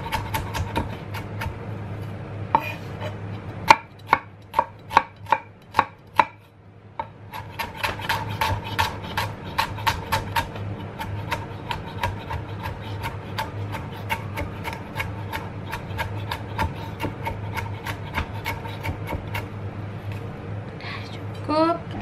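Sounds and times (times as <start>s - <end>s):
knife chopping on cutting board: 0.0s - 1.6s, 2.6s - 2.8s, 3.7s - 6.4s, 7.0s - 19.5s.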